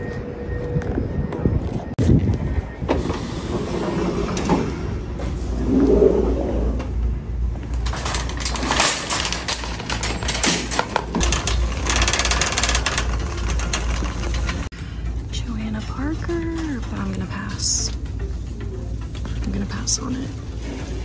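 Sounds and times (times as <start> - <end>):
cart basket and wheels clatter: 7.8 - 14.7
shopping cart rattling: 7.8 - 14.7, 15.4 - 18.0.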